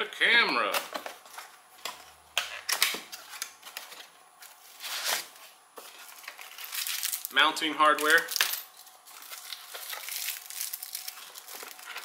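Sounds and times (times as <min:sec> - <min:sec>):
cardboard box being unpacked: 0:09.2 - 0:12.0.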